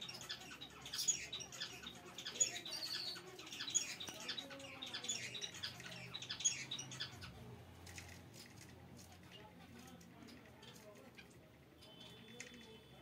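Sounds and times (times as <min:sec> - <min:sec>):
finches chirping: 0:00.0 - 0:07.4.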